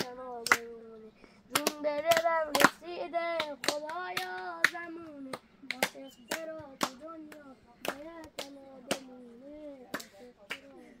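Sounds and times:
sharp hand claps: 0:00.0 - 0:00.8, 0:01.5 - 0:09.2, 0:09.8 - 0:10.8.

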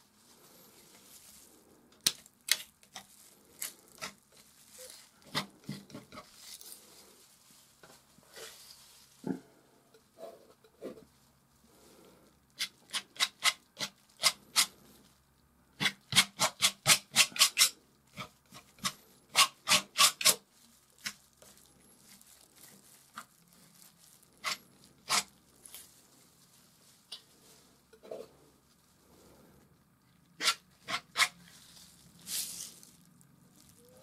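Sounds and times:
palette knife scraping paint: 0:12.6 - 0:14.7, 0:30.4 - 0:31.5.

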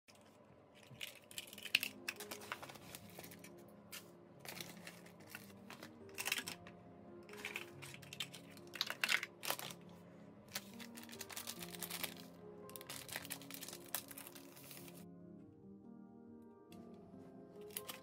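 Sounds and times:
soft background music: 0:00.1 - 0:18.0.

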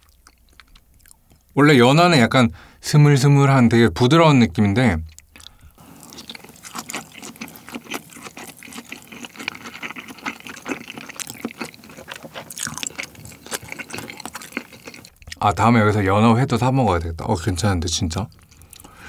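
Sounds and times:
wet chewing: 0:00.0 - 0:01.5, 0:05.1 - 0:15.4.

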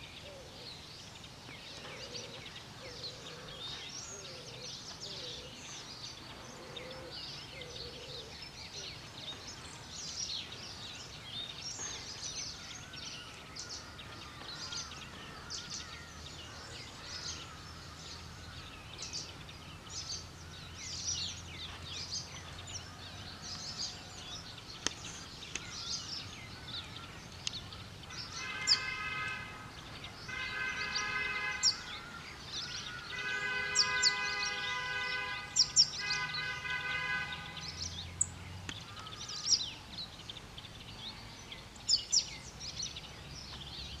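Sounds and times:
small birds chirping: 0:00.0 - 0:44.0
horn blasts: 0:28.3 - 0:29.7, 0:30.3 - 0:31.9, 0:33.1 - 0:37.8.

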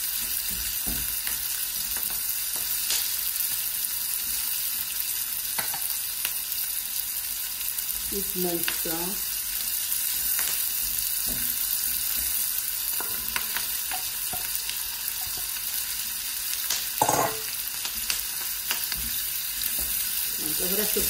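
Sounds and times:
onions sizzling in a pan: 0:00.0 - 0:21.0
spatula knocking on pan: 0:17.0 - 0:17.5.

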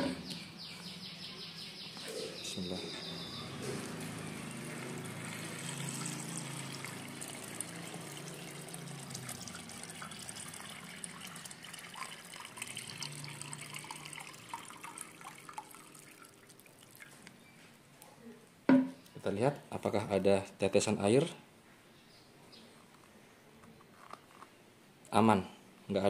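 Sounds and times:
water pouring into rubber glove: 0:04.3 - 0:17.2.

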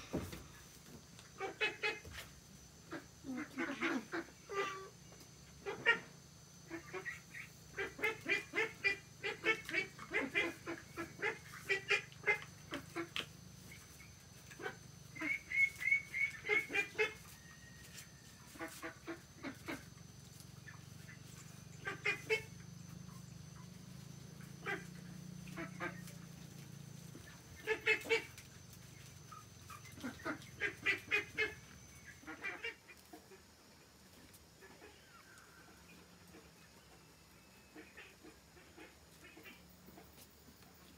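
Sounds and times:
waterfowl honking: 0:14.5 - 0:17.4, 0:27.2 - 0:28.4.

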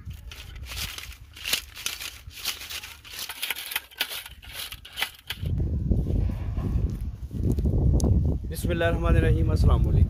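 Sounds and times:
fries rattling in metal colander: 0:00.0 - 0:05.5.

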